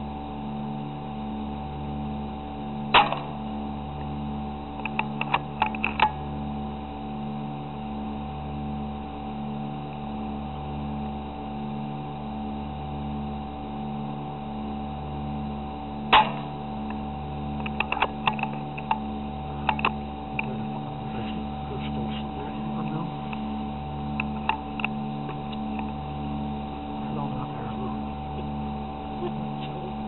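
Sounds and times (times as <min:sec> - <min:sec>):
steady hum: 0:00.0 - 0:30.0
rifle shot: 0:02.9 - 0:03.4, 0:16.1 - 0:16.6.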